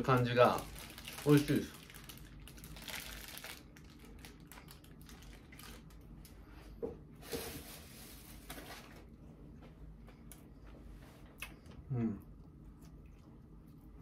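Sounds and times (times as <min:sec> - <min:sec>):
paper wrapper rustling: 0:00.0 - 0:06.1, 0:07.2 - 0:09.1
faint chewing: 0:09.5 - 0:14.0.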